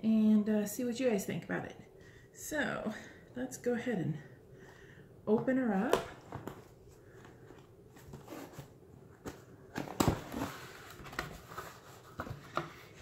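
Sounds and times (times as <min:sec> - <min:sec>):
cardboard box being opened: 0:08.0 - 0:12.6.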